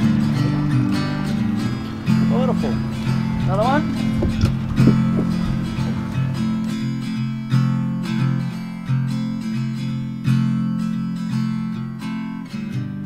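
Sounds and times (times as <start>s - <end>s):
acoustic guitar chords: 0.0s - 13.0s.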